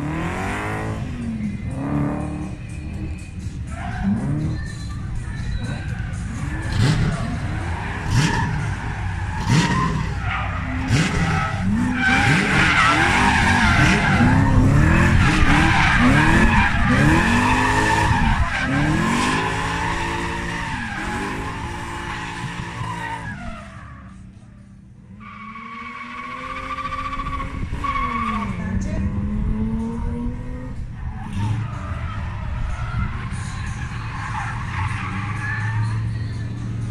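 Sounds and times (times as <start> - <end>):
another car engine: 0.0 - 36.9
car engine revving: 0.0 - 36.9
tyres squealing: 2.7 - 24.2.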